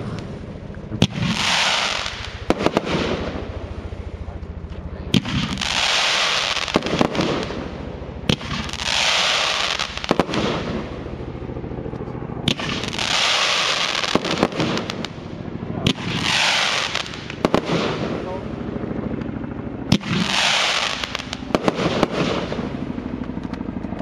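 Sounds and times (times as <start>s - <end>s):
hissing rush of fireworks: 0.0s - 11.2s, 12.4s - 18.5s, 19.9s - 24.0s
firework shot bangs: 1.0s - 3.4s, 5.1s - 7.7s, 12.5s - 15.2s, 15.8s - 18.2s, 19.9s - 22.7s.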